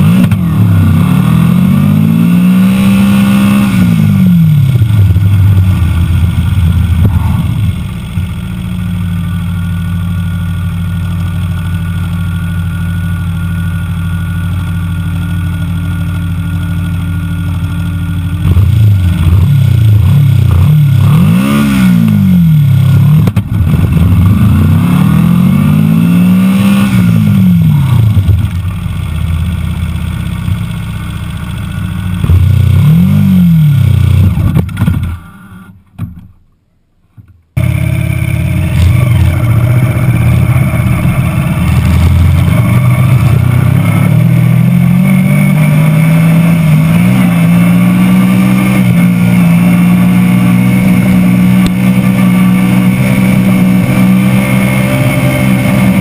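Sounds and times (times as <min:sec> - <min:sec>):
race car engine revving: 0:00.0 - 0:08.7, 0:18.4 - 0:28.3, 0:37.6 - 0:56.0.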